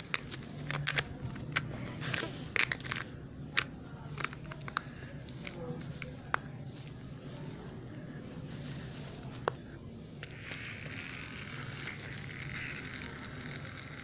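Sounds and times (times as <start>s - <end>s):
rustling and scraping of toys: 0.0s - 10.9s.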